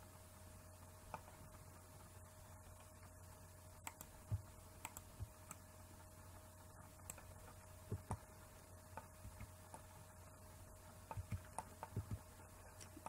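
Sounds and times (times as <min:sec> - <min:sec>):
low steady hum: 0:00.0 - 0:13.0
mouse and keyboard clicks: 0:03.8 - 0:05.6, 0:11.1 - 0:13.0.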